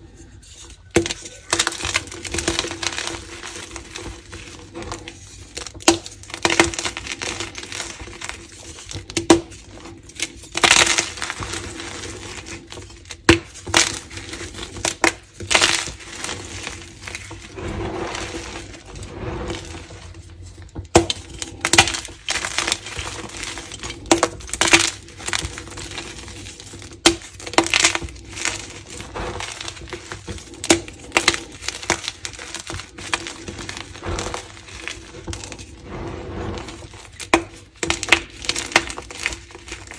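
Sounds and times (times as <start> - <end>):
chalk powdery crumbling: 0.0 - 39.9
chalk snapping and crunching: 20.9 - 35.9.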